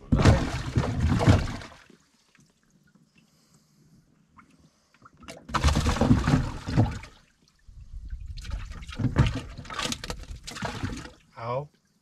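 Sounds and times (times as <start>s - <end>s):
water splashing and sloshing: 0.0s - 12.0s.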